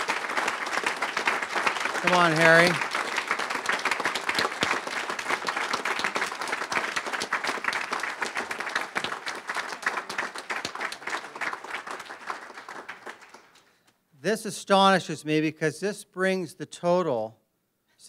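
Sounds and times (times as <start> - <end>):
audience applauding: 0.0 - 13.8.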